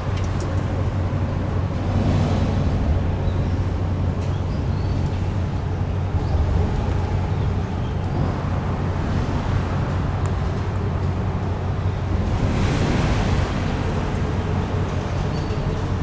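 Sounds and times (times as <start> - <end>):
low engine drone: 0.0 - 16.0
water rushing: 12.0 - 15.1.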